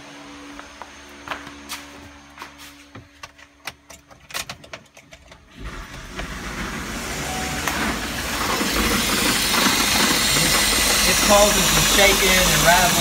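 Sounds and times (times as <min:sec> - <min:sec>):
engine running rough: 0:05.5 - 0:13.0.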